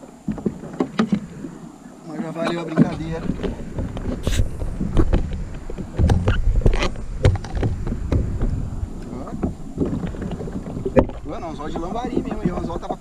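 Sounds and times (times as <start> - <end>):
wind rumbling on microphone: 0.0 - 13.0
clicks and knocks of fishing gear: 2.8 - 11.3.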